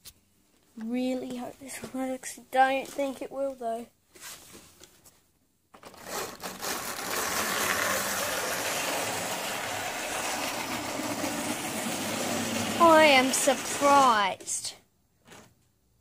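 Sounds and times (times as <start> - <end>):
model train motor running: 6.1 - 14.2.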